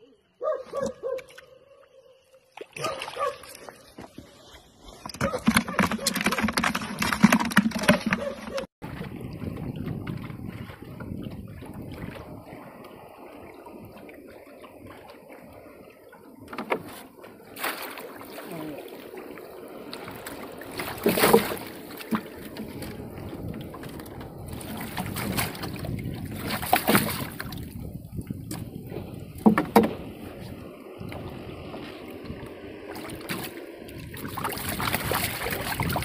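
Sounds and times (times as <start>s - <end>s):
wind: 0.0s - 36.0s
lapping water: 2.4s - 36.0s
knocks and thumps on wooden boat: 16.4s - 17.3s, 20.8s - 27.7s, 28.4s - 30.2s.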